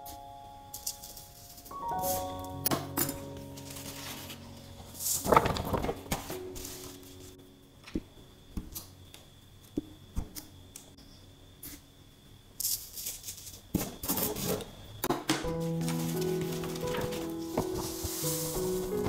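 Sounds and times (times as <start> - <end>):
sand pouring hiss: 17.3 - 19.0.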